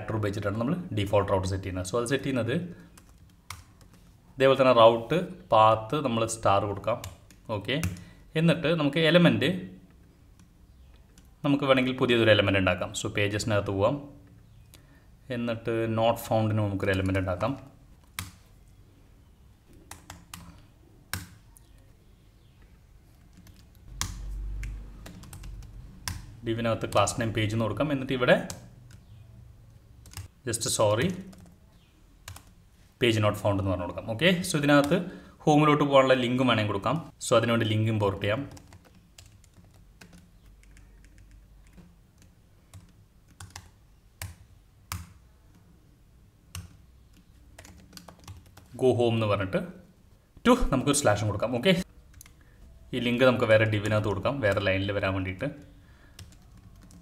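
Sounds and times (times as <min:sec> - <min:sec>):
keyboard keystrokes: 0:23.2 - 0:27.0
keyboard keys clicking: 0:23.2 - 0:27.1, 0:30.0 - 0:30.3, 0:38.5 - 0:45.6, 0:46.5 - 0:48.7, 0:56.2 - 0:57.0.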